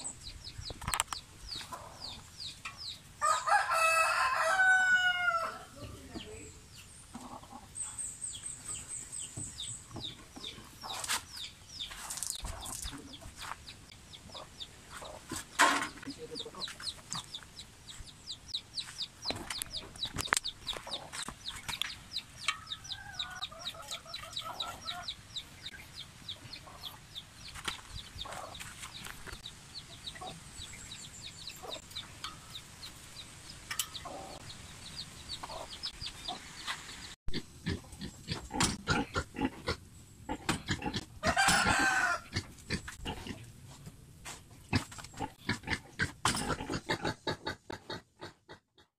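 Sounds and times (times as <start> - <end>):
hen clucking: 0.0 - 6.4, 7.1 - 8.0, 8.7 - 30.7, 31.4 - 32.6, 33.8 - 36.7, 44.7 - 48.9
birds chirping: 0.0 - 43.5.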